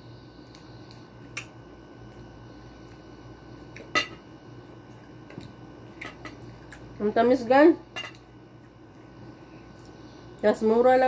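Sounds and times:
low steady hum: 0:00.0 - 0:11.0
quiet chewing: 0:00.4 - 0:04.0, 0:04.8 - 0:07.0, 0:08.2 - 0:10.2.

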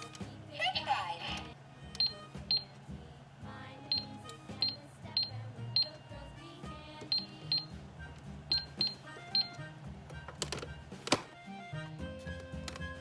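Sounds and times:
music playing: 0:00.0 - 0:13.0
toy keypad beeping: 0:01.9 - 0:02.7, 0:03.9 - 0:06.0, 0:07.1 - 0:07.8, 0:08.5 - 0:09.6.

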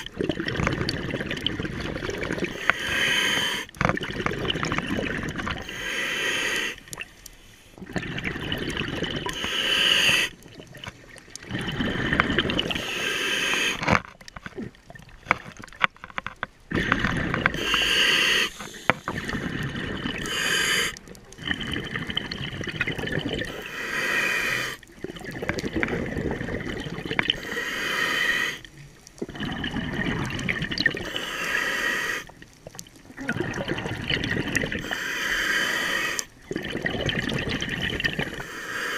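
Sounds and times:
regulator hissing inhale: 0:02.5 - 0:03.7, 0:05.6 - 0:07.8, 0:09.3 - 0:10.3, 0:12.8 - 0:13.8, 0:17.5 - 0:19.6, 0:20.2 - 0:21.0, 0:23.5 - 0:24.8, 0:27.4 - 0:28.7, 0:31.0 - 0:32.3, 0:34.8 - 0:36.3, 0:38.3 - 0:38.9
bubbling exhaust: 0:07.8 - 0:10.6, 0:16.7 - 0:23.8, 0:25.0 - 0:27.4, 0:36.4 - 0:38.4.

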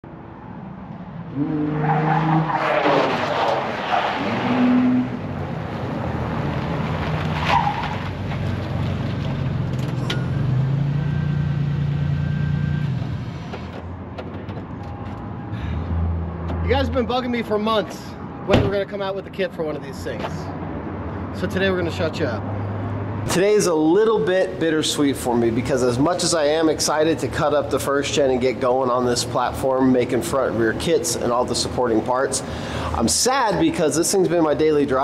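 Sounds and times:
vehicle engine revving: 0:01.2 - 0:07.4
tires squealing: 0:01.3 - 0:13.5.

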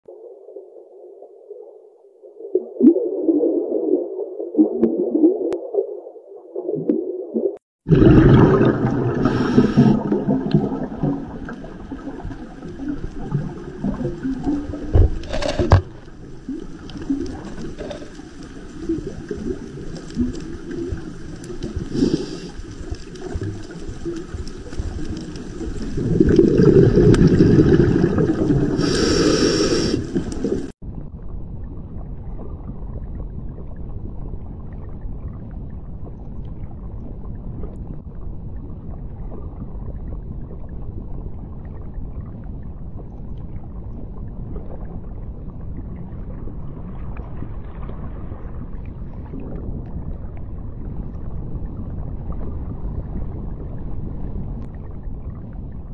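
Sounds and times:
muffled underwater rumbling wash: 0:00.1 - 0:55.9
gurgling swell: 0:07.9 - 0:30.7
underwater clicks: 0:08.4 - 0:30.7
dull hiss: 0:11.3 - 0:30.8.

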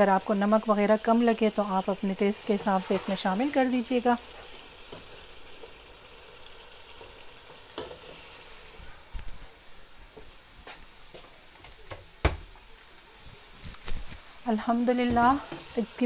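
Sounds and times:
curry sizzling in oil: 0:00.0 - 0:09.1, 0:14.2 - 0:16.0.

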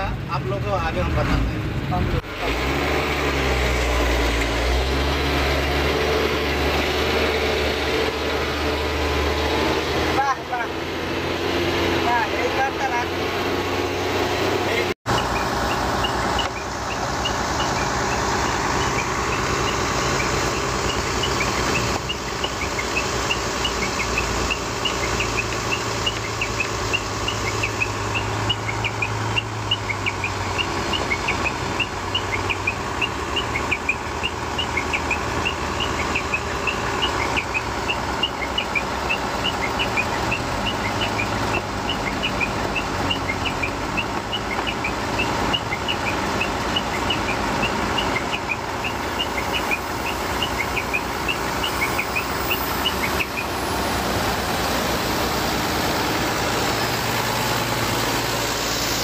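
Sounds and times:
diesel truck engine running: 0:00.0 - 0:59.0.

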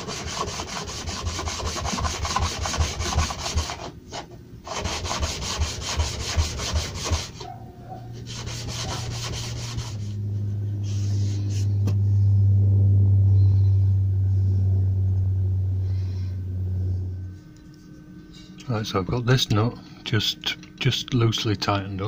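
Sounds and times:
blade scraping on abrasive paper: 0:00.0 - 0:07.5, 0:08.2 - 0:10.2, 0:10.8 - 0:11.8
steady low hum: 0:00.0 - 0:22.0.

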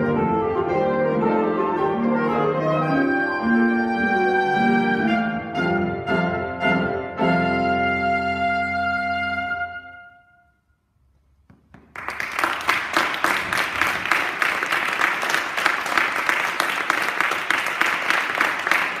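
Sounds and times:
audience applause: 0:11.8 - 0:19.0.

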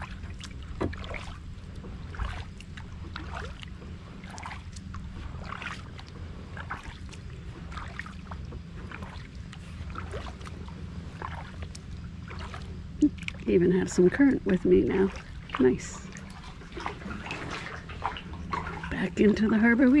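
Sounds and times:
low steady rumble: 0:00.0 - 0:20.0
paddle strokes splashing: 0:00.0 - 0:20.0.

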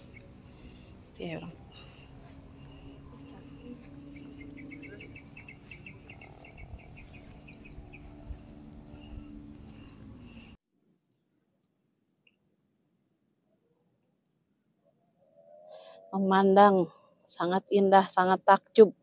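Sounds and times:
steady low hum: 0:00.0 - 0:10.6
insects chirping: 0:00.0 - 0:11.2.

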